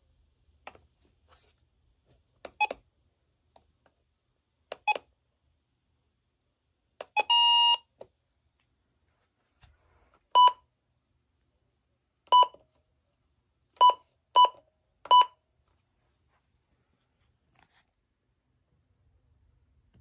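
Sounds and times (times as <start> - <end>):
key-press beeps: 2.5 - 2.8, 4.7 - 5.1, 7.0 - 7.8, 13.8 - 15.4.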